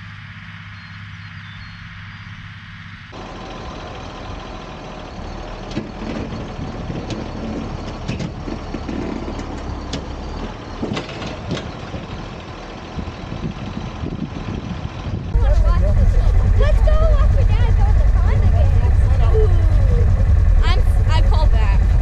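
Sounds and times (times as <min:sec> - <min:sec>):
tractor engine idling: 0:00.0 - 0:22.0
sharp knocks and clanks: 0:05.6 - 0:12.0.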